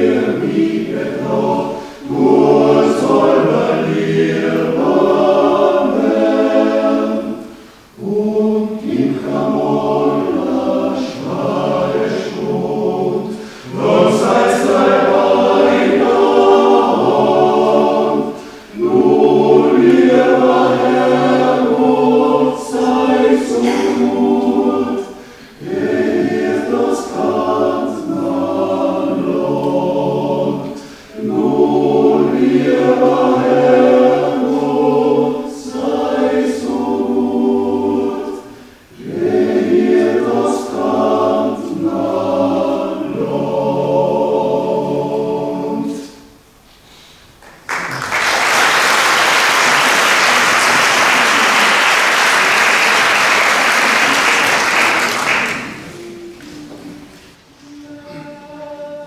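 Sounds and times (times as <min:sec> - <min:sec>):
men's choir singing a cappella: 0:00.0 - 0:46.4, 0:49.6 - 0:59.0
audience applause: 0:47.4 - 0:55.9.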